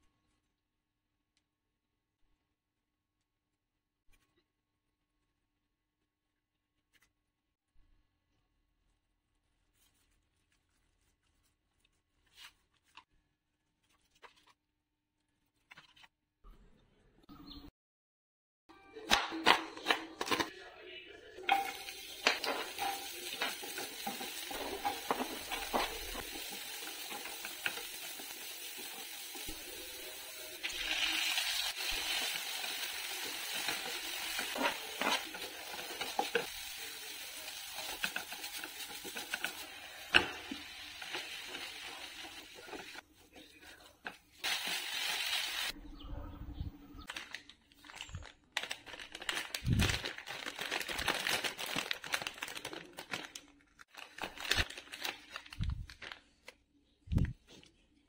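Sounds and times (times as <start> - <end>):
vegetables sizzling in oil: 21.5 - 43.0, 44.4 - 45.8.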